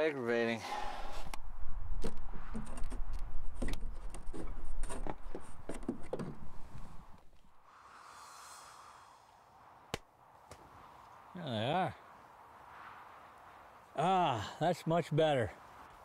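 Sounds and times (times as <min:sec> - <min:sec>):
steady hiss: 0:07.5 - 0:10.4.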